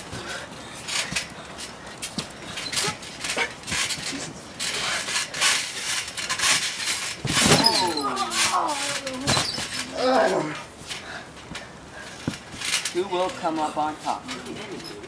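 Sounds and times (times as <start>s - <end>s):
people wrestling on trampoline: 0.0s - 15.0s
person crying out: 7.5s - 9.3s, 9.9s - 10.6s.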